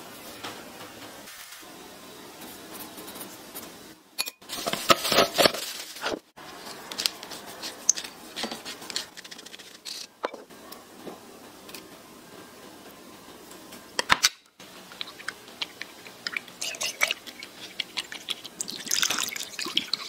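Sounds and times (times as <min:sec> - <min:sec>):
spoon scraping glass bowl: 0:15.0 - 0:20.0.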